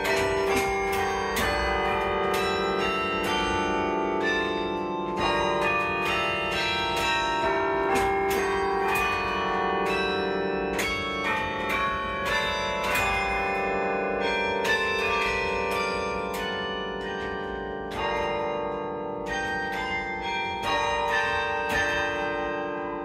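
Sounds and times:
carillon bells ringing: 0.0s - 23.0s.

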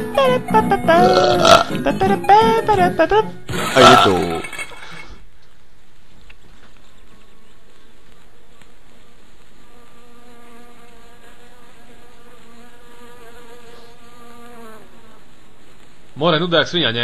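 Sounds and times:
fly buzzing: 0.0s - 4.2s, 8.1s - 16.1s
faint background hiss: 0.0s - 17.0s.

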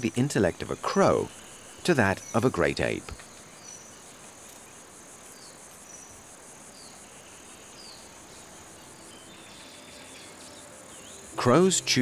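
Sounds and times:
insect chorus with pulsing trill: 0.0s - 12.0s.

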